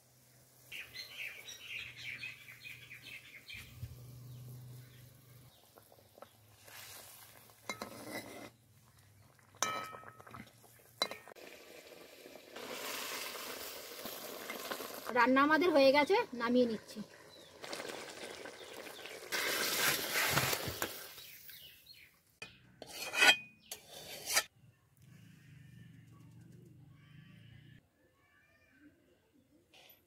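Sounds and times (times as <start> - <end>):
gravy bubbling in a pan: 5.1 - 21.3
ladle stirring and scraping: 5.8 - 11.4, 22.8 - 24.5
ladle clinking on pan: 9.6 - 10.3, 11.0 - 11.3.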